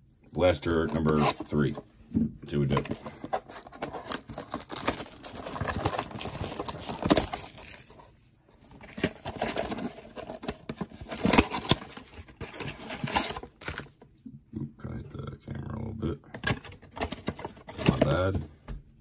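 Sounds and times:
plastic shrink wrap crinkling and tearing: 3.8 - 8.1.

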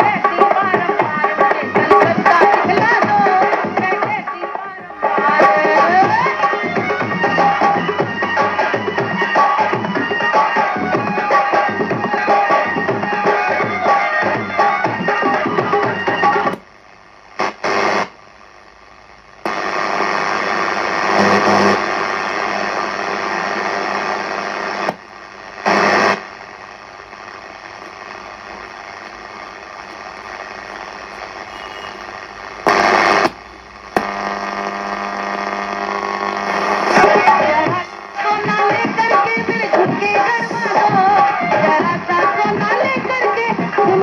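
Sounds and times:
radio static and hiss: 0.0 - 44.0
faint radio whistles: 31.4 - 32.3.

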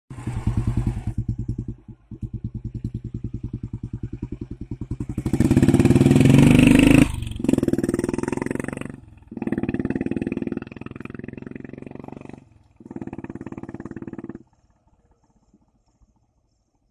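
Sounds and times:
motorcycle engine thumping: 0.2 - 6.5.

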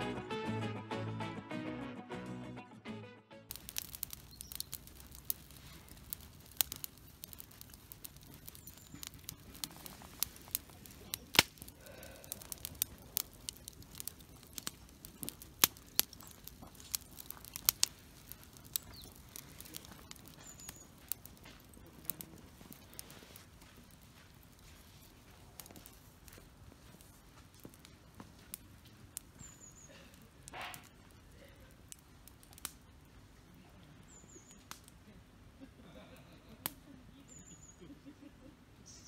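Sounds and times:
sharp pops of fire: 3.5 - 32.9, 34.1 - 35.0, 36.6 - 36.8
wood fire crackling: 3.5 - 37.8.

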